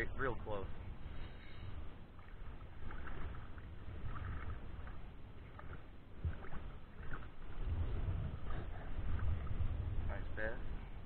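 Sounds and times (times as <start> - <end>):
low steady rumble: 0.0 - 11.0
fish thrashing and splashing water: 2.1 - 9.6.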